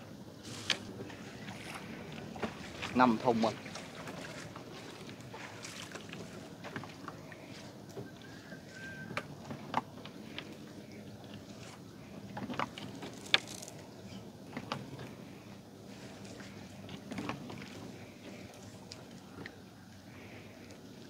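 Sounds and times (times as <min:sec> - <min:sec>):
fishing net gear clicking: 0:12.7 - 0:13.8.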